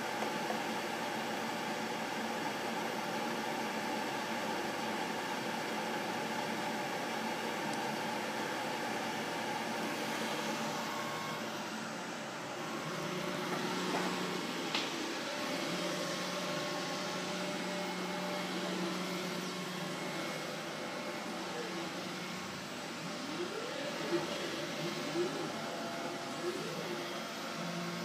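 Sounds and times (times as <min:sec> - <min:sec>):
cooling fans whirring: 0:00.0 - 0:28.0.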